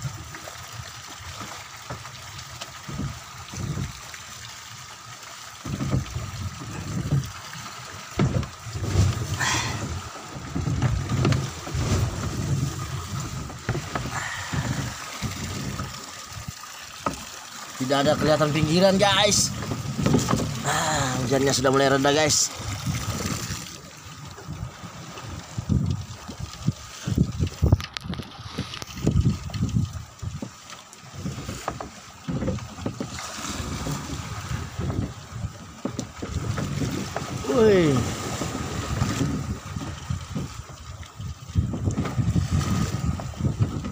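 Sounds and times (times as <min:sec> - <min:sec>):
boat rumbling and buffeting: 0:00.0 - 0:43.9
choppy sea: 0:00.0 - 0:43.9
wind: 0:00.0 - 0:43.9
rain: 0:06.6 - 0:12.1, 0:13.7 - 0:15.8, 0:16.4 - 0:22.5, 0:37.4 - 0:38.4.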